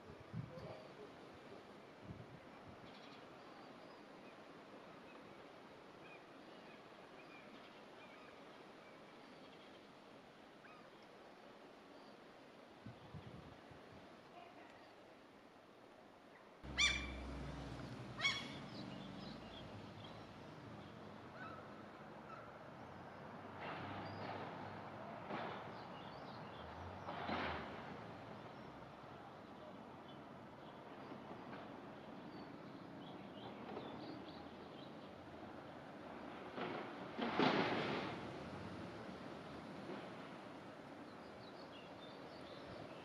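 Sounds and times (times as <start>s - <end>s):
gull calls: 16.7s - 17.4s, 18.1s - 18.9s.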